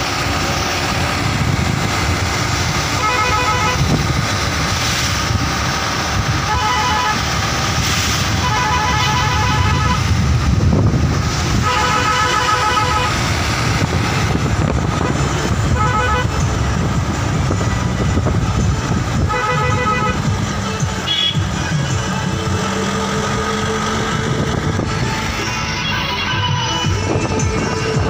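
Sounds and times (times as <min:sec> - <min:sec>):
engine and road rumble: 0:00.0 - 0:28.0
vehicle horn honking: 0:03.0 - 0:03.9, 0:06.4 - 0:07.3, 0:08.3 - 0:10.0, 0:11.6 - 0:13.2, 0:15.0 - 0:16.4, 0:19.3 - 0:20.2, 0:21.0 - 0:21.5, 0:25.7 - 0:27.0.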